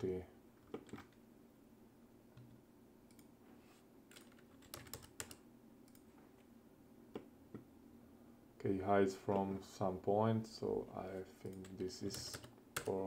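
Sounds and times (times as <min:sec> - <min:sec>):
computer keyboard key presses: 0:04.1 - 0:06.0.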